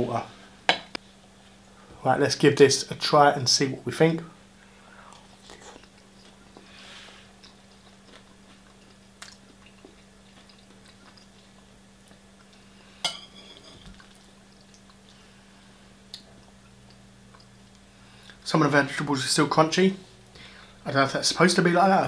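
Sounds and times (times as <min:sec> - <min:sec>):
faint low hum: 0:00.0 - 0:22.0
quiet chewing: 0:04.6 - 0:13.0, 0:13.7 - 0:18.4.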